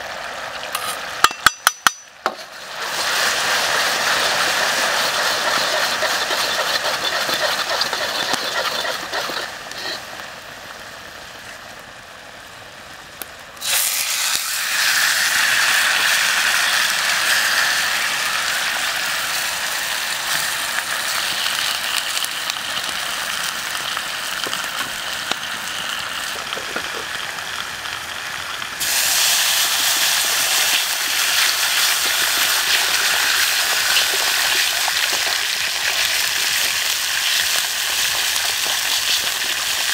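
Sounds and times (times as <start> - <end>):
sauce sizzling in a wok: 2.4 - 10.1, 13.6 - 39.9
metal ladle scraping a wok: 4.8 - 10.0.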